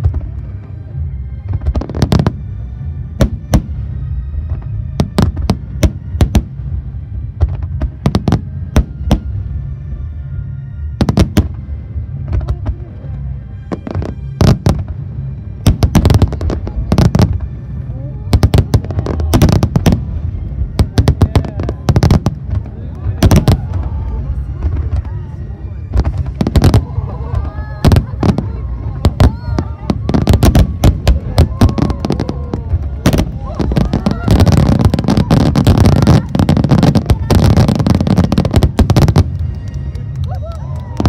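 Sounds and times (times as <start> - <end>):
deep rumbling: 0.0 - 41.0
music: 0.0 - 41.0
fireworks bangs: 18.3 - 41.0.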